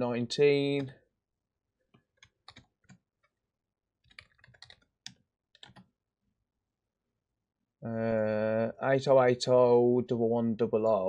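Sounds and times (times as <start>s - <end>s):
faint keyboard typing: 1.9s - 3.4s, 4.0s - 5.9s.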